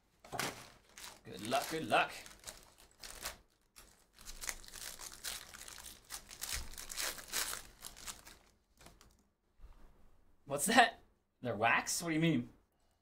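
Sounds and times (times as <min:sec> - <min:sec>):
foil pack tearing open: 0:00.4 - 0:09.0
foil wrappers crinkling: 0:00.4 - 0:09.2.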